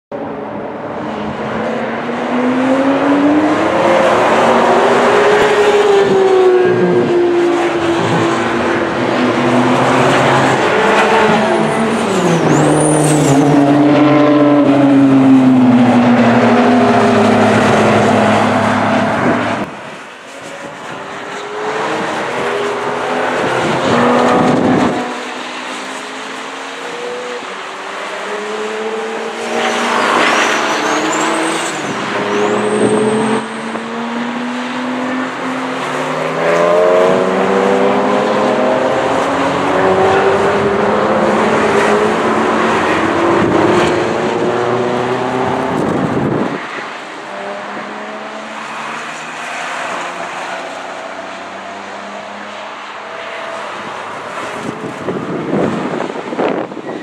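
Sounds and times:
race cars passing: 0.1s - 57.0s
tire squeals: 9.8s - 13.8s, 29.3s - 33.9s, 54.5s - 57.0s.

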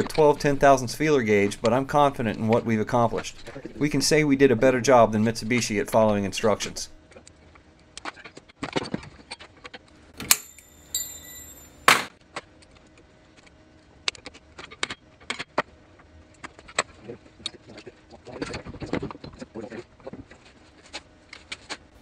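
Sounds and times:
metallic tool clicks and clinks: 10.2s - 12.1s.

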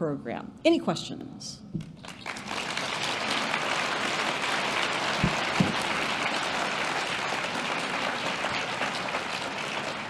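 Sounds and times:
audience applauding: 2.0s - 10.0s.

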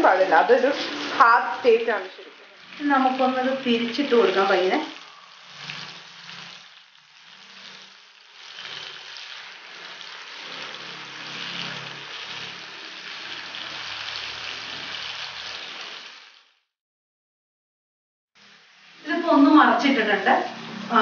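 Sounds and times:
fish sizzling in oil: 0.0s - 16.7s, 18.4s - 21.0s
fork and spatula turning fish: 0.3s - 16.4s.

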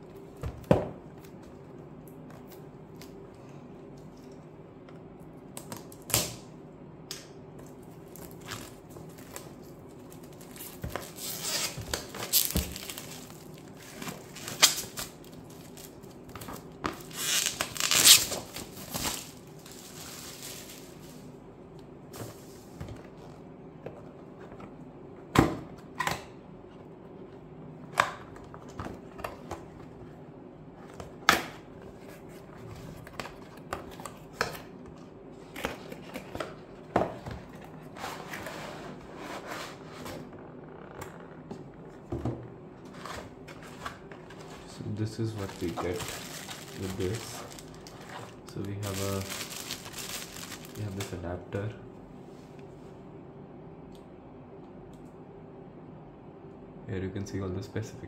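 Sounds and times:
plastic wrap crinkling and tearing: 8.0s - 21.2s, 44.9s - 51.2s.

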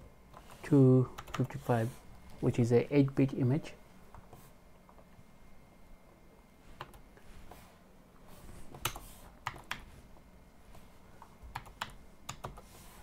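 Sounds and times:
keyboard typing: 1.2s - 1.7s, 8.8s - 9.9s, 11.5s - 12.7s.

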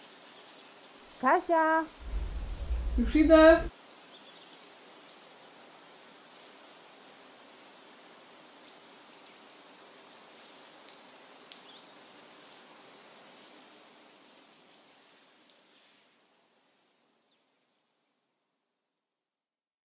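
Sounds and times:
distant birds chirping: 1.2s - 3.7s.

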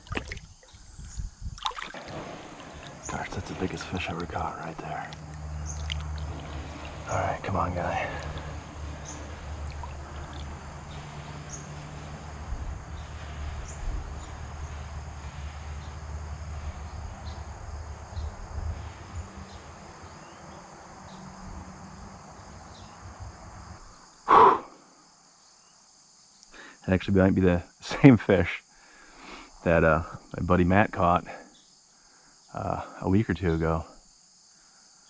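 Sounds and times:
low outdoor rumble: 0.0s - 23.9s
crickets chirping: 0.0s - 35.0s.

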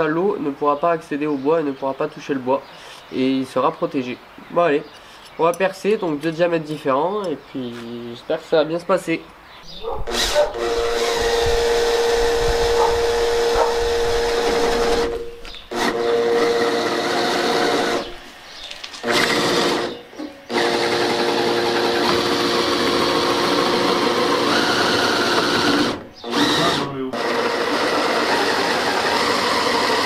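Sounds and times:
drill boring through plywood: 10.1s - 18.2s, 19.0s - 30.0s.

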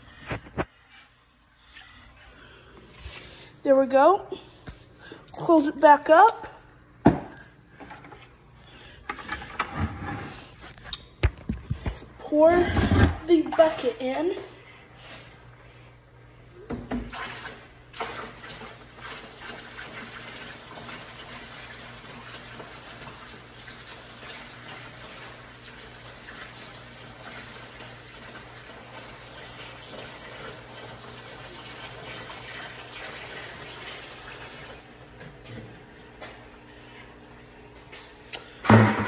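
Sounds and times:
water pouring and splashing: 17.1s - 37.9s
bucket knocks: 38.6s - 39.0s.

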